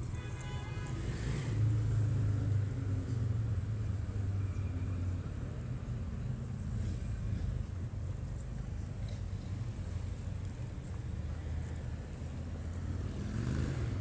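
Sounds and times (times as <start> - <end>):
motor vehicle passing by: 10.8 - 14.0.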